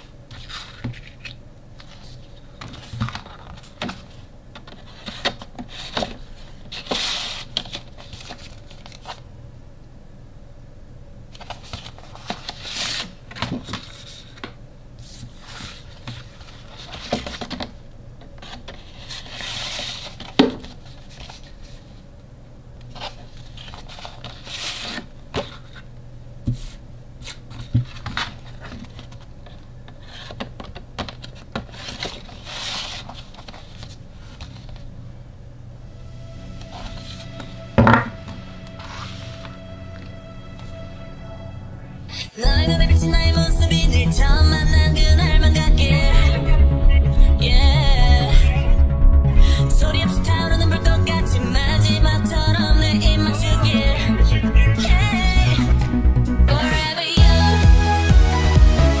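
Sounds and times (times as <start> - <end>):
paper sliding and rustling: 0.0 - 9.3, 11.3 - 17.7, 18.4 - 22.0, 22.9 - 25.9, 26.5 - 34.9, 36.5 - 40.7.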